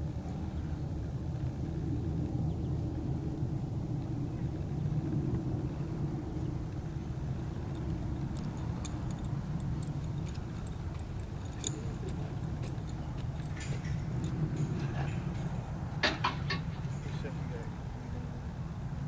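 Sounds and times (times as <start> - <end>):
steady low rumble: 0.0 - 18.0
light irregular clicking: 7.6 - 16.6.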